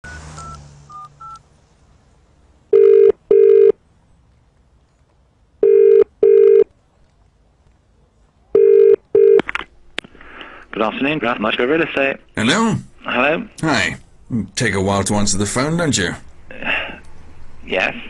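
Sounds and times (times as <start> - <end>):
telephone ringback tone: 2.7 - 3.8, 5.6 - 6.7, 8.6 - 9.4.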